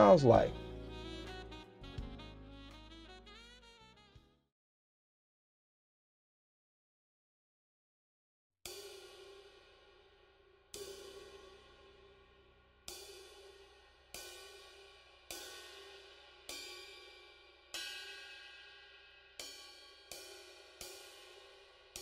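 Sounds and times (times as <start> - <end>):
cymbal struck and ringing: 8.7 - 22.0.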